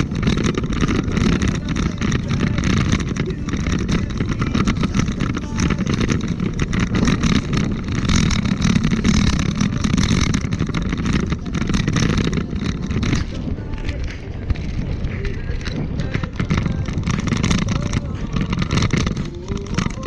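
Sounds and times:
small rattles: 0:00.0 - 0:20.0
wheels rolling over pavement: 0:00.0 - 0:20.0
wind buffeting microphone: 0:00.0 - 0:20.0.

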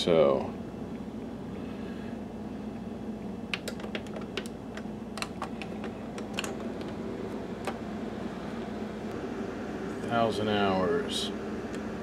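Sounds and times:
projector humming: 0:00.0 - 0:12.0.

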